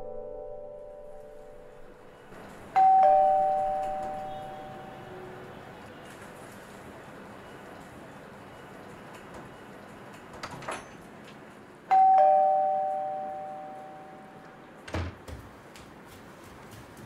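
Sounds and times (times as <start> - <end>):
doorbell ding-dong chime: 2.8 - 4.9, 11.9 - 14.4.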